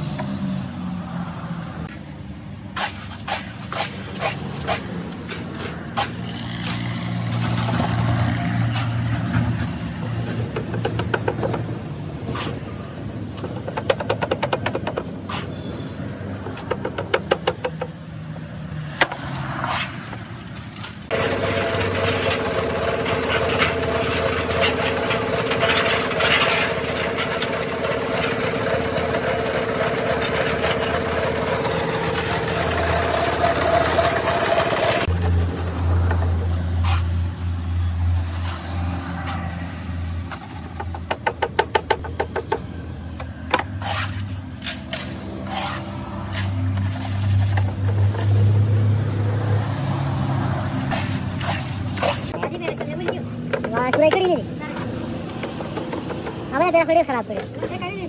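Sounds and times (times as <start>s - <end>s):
metal moulds knocking and scraping: 3.2s - 15.5s, 16.3s - 18.0s, 21.1s - 37.0s, 40.2s - 48.5s, 51.9s - 58.0s
concrete mixer motor humming: 21.1s - 36.5s.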